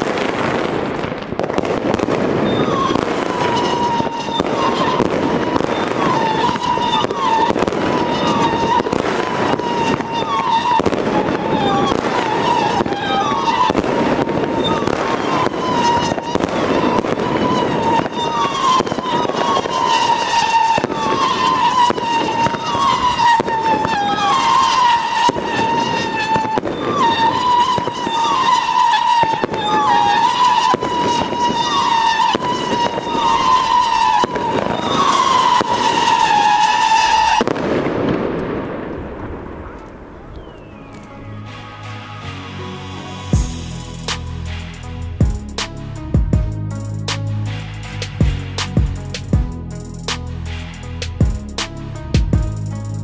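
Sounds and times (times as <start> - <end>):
fireworks crackling and banging: 0.0 - 53.0
steady whistling tone: 40.2 - 45.8, 46.8 - 53.0.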